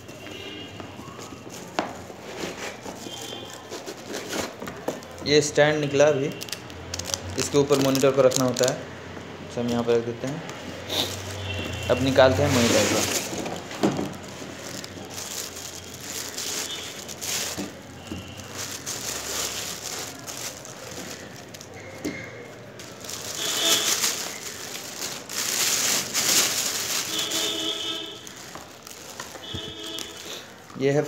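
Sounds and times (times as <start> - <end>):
plastic bag crinkling: 0.3 - 8.8, 10.5 - 30.8
foam packing pulled off: 10.9 - 21.8, 22.8 - 30.4.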